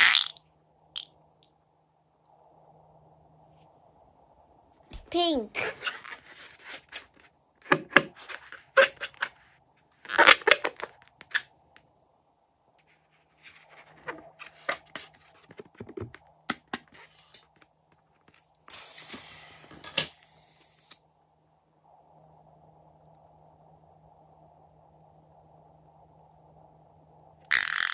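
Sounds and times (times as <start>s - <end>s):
hissing rubbing noise: 18.3s - 21.0s.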